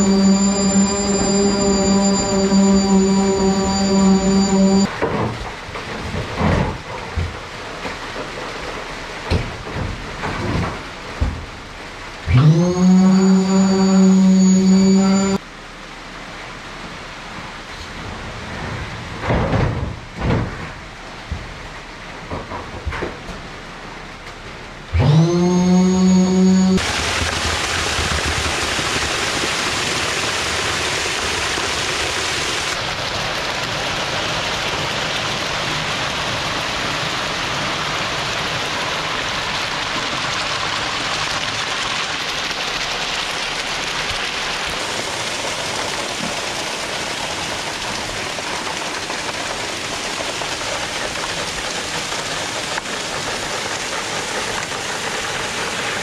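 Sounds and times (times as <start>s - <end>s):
loud pitched tone: 0.0s - 4.9s, 12.3s - 15.4s, 25.0s - 26.8s
wet concrete pouring: 0.0s - 15.6s, 26.7s - 56.0s.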